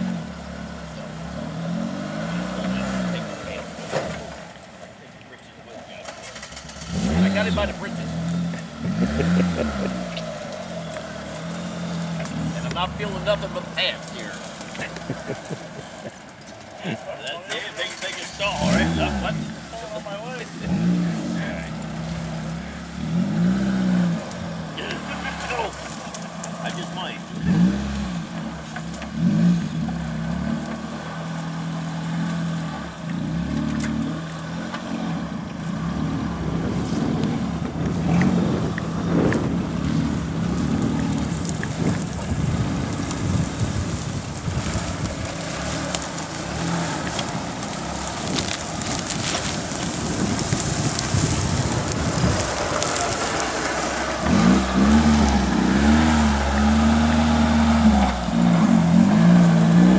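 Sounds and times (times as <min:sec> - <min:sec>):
engine pulling at low speed: 0:00.0 - 0:59.9
vegetation rustling against vehicle: 0:00.0 - 0:59.9.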